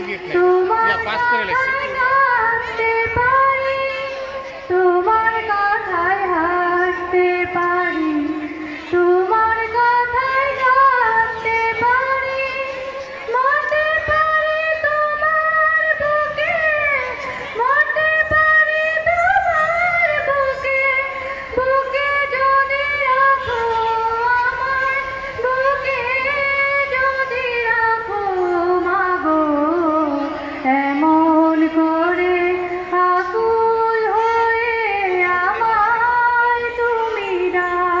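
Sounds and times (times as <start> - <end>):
girl singing into microphone: 0.4 - 38.0.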